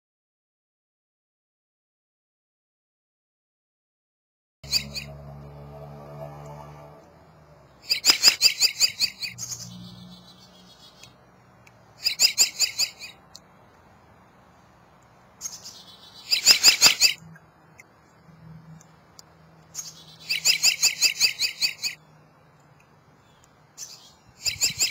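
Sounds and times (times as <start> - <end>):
robin singing: 7.7 - 13.6, 14.3 - 24.9.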